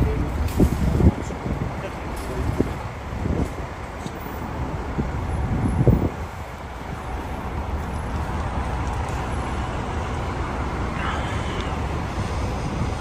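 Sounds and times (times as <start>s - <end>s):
bus engine rumble: 0.0s - 13.0s
road traffic: 0.0s - 13.0s.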